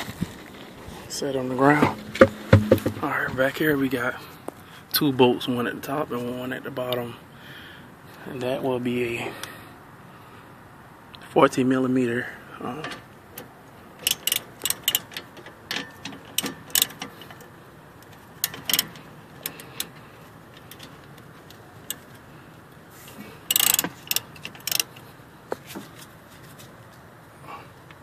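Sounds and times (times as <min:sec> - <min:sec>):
hand ratchet clicking: 0:13.4 - 0:17.5, 0:18.1 - 0:20.0, 0:23.5 - 0:25.0.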